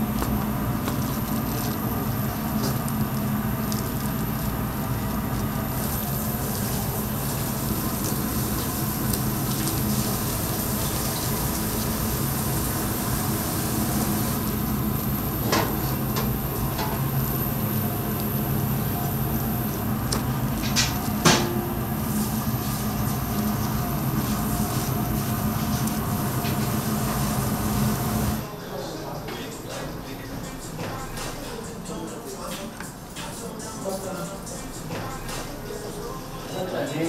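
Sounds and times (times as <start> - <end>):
steady low hum: 0.0 - 28.5
hiss like running water: 5.7 - 15.5.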